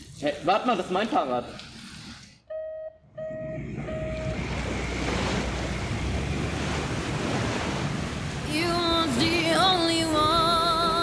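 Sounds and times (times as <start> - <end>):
choppy water: 3.4 - 11.0.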